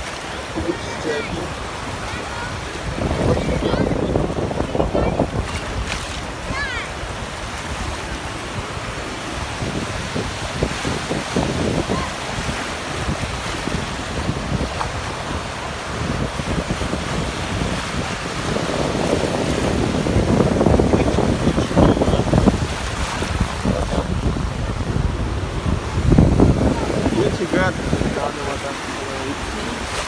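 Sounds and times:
sea surf breaking: 0.0s - 30.0s
wind buffeting microphone: 0.6s - 30.0s.

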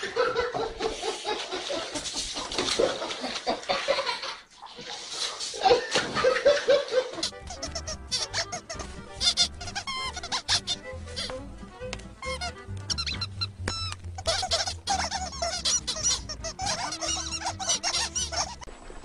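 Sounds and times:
people laughing: 0.0s - 4.4s, 5.6s - 7.4s
cartoon birds squeaking: 7.2s - 11.4s, 12.2s - 18.7s
cartoon music: 7.2s - 18.7s.

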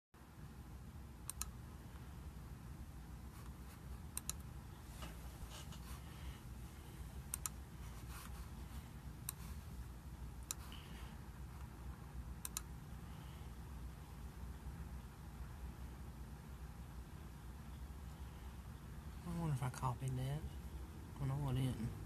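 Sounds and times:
low steady hum: 0.2s - 22.0s
computer mouse clicking: 1.2s - 1.6s, 3.4s - 4.5s, 7.3s - 8.4s, 9.2s - 9.6s, 10.4s - 10.8s, 12.4s - 12.7s.

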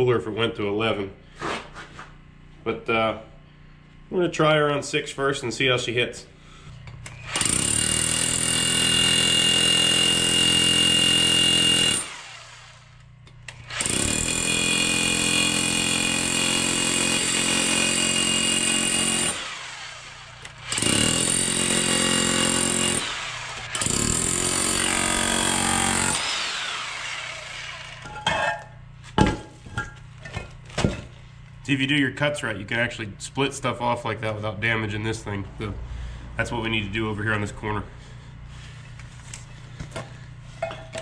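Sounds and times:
demolition hammer chiseling concrete: 7.3s - 12.7s, 13.6s - 28.1s.

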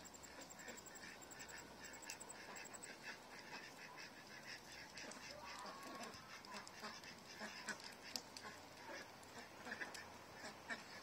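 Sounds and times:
hen clucking softly: 0.2s - 11.0s.

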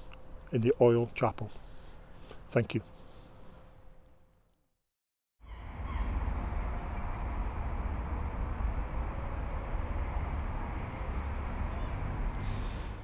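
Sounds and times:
distant city traffic rumble: 5.4s - 13.0s.

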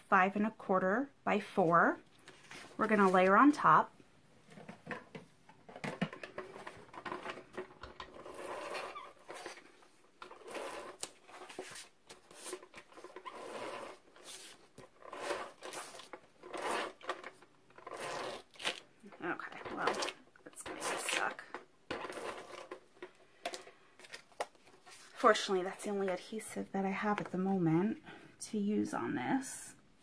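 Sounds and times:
rustling and scraping of card: 2.1s - 3.4s, 5.7s - 25.4s.

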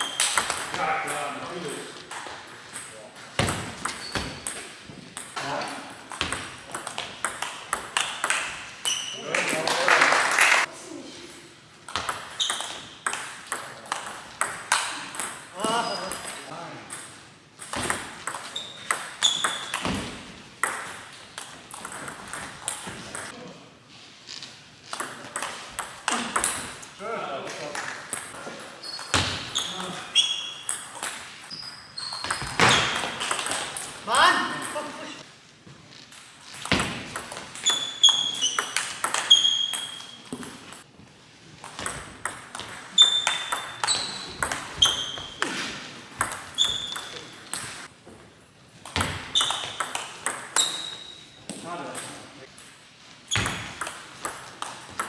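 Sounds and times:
table tennis ball hits: 0.0s - 1.4s, 2.1s - 9.6s, 11.9s - 23.3s, 24.9s - 26.8s, 32.2s - 33.9s, 36.5s - 40.8s, 41.6s - 47.9s, 48.8s - 55.0s
short high squeaks: 3.9s - 4.5s, 8.8s - 9.3s, 18.5s - 19.8s, 28.8s - 30.7s, 31.5s - 33.0s, 37.6s - 40.3s, 42.9s - 45.4s, 46.6s - 47.4s, 50.6s - 51.4s
ball bouncing on table: 6.1s - 9.0s, 11.9s - 23.3s, 41.6s - 45.6s, 46.2s - 47.8s, 48.9s - 50.9s, 53.3s - 55.0s.

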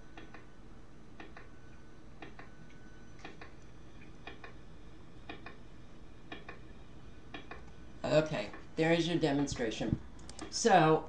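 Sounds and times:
rf meter speaker clicking: 5.2s - 5.6s, 6.3s - 6.6s, 7.3s - 7.8s, 9.5s - 10.6s.

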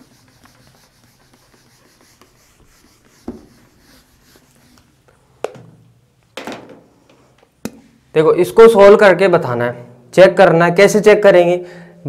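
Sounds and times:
duster rubbing on whiteboard: 0.0s - 5.0s.

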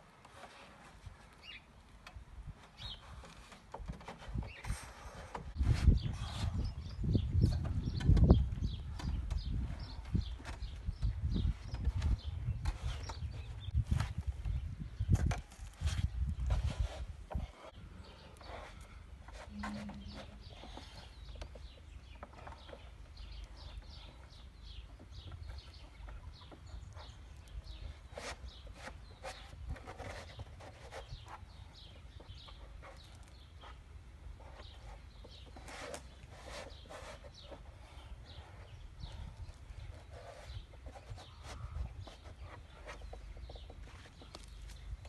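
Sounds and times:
knocks and scrapes on wooden board: 2.6s - 6.7s, 18.4s - 22.8s, 27.8s - 31.4s.

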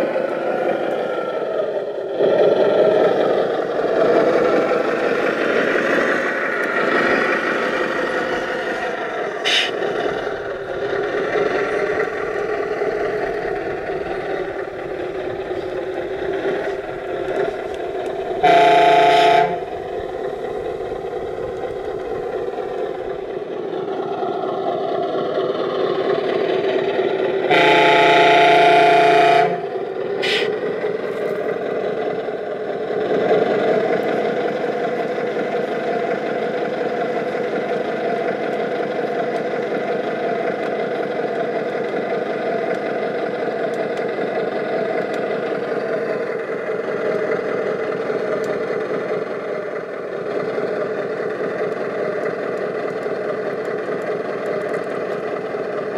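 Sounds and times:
simulated diesel engine running: 0.0s - 55.9s
horn blaring: 18.4s - 19.8s, 27.5s - 29.7s.

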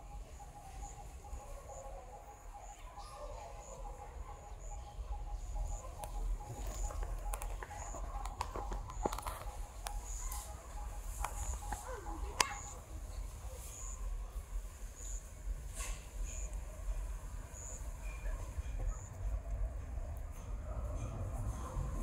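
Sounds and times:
faint pulsing call: 0.0s - 14.3s.

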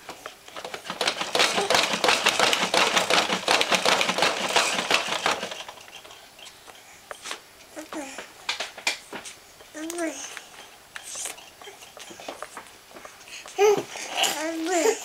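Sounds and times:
plastic toys rattling: 0.1s - 6.3s.

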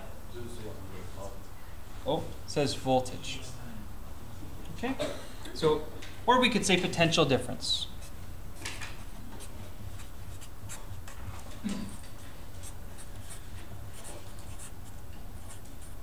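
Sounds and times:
low steady hum: 0.0s - 16.0s
marker scratching on paper: 9.0s - 16.0s.

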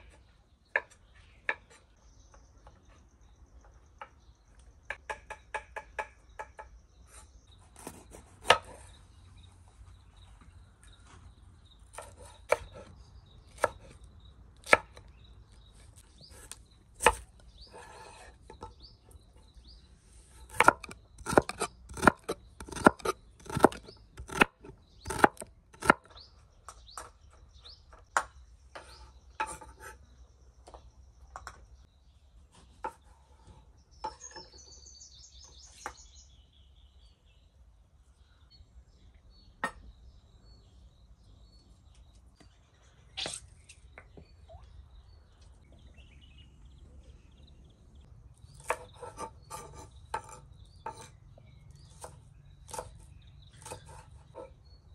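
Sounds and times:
knife chopping on wooden board: 20.5s - 26.1s, 48.6s - 51.1s, 53.6s - 54.5s.

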